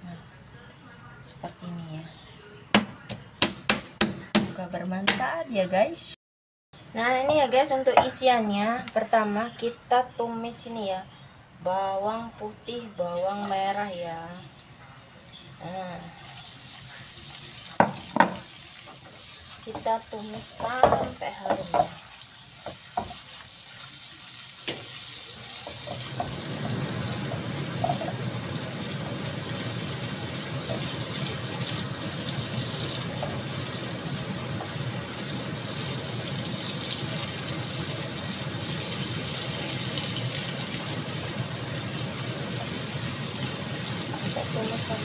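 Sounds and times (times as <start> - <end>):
garlic sizzling in hot oil: 16.3 - 45.0.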